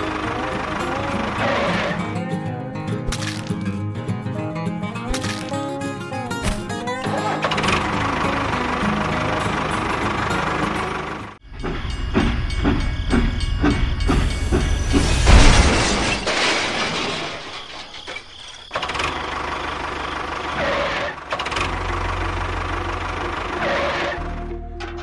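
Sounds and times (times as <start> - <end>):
low engine hum: 0.0 - 3.0, 7.3 - 15.2.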